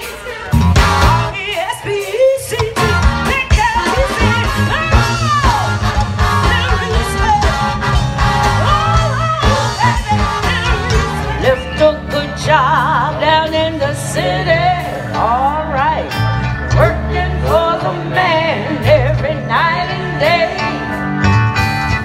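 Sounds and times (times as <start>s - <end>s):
bass line: 0.0s - 1.8s, 2.5s - 22.0s
steady drum beat: 0.0s - 11.6s
live band playing: 0.0s - 22.0s
lead singer singing: 8.6s - 21.0s.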